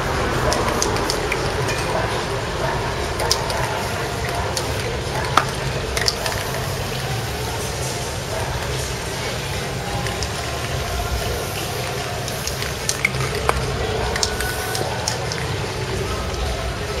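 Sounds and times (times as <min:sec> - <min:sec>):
spray paint can hissing: 0:03.2 - 0:16.5.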